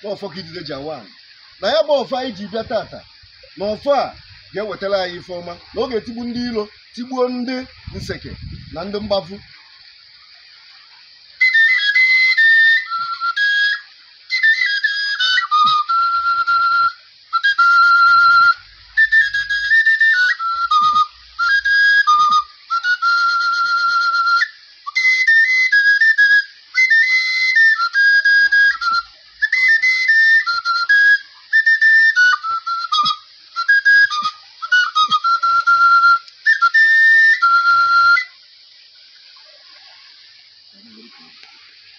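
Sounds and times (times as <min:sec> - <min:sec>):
small wooden flute melody: 0:11.2 - 0:40.0.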